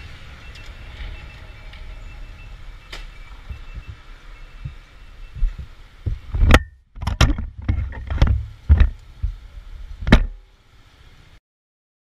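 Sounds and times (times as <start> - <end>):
sharp knocks and thumps: 5.4 - 9.4, 10.0 - 10.4.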